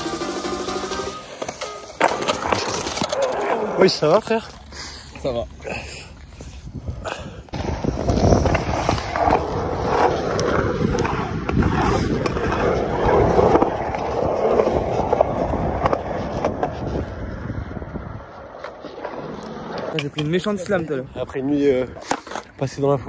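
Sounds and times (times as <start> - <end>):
skateboard wheels rolling on concrete: 0.0 - 23.0
skateboard clacks: 7.6 - 17.4.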